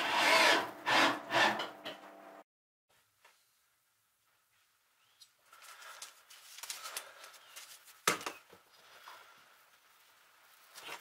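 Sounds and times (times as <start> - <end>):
rustling: 4.2 - 11.0.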